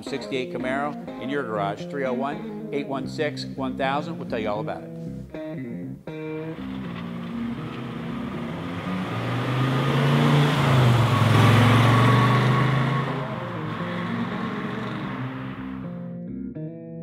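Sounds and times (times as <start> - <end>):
car engine accelerating past: 6.5 - 16.0.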